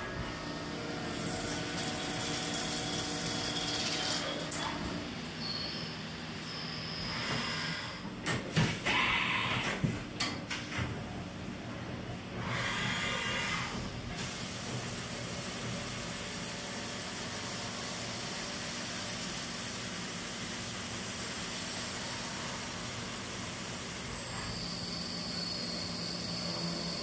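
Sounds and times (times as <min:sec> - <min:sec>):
low machine hum: 0:00.0 - 0:08.3
coolant spraying hiss: 0:14.2 - 0:22.0
drill high whine: 0:21.9 - 0:27.0.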